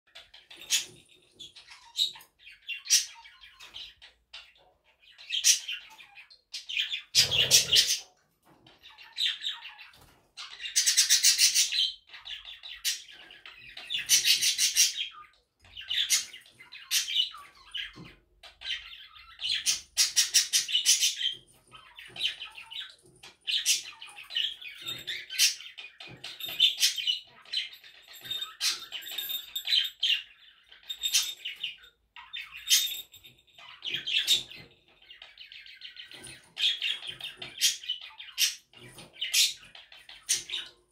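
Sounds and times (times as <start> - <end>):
budgerigar chattering and chirping: 1.5 - 8.2, 8.9 - 27.8.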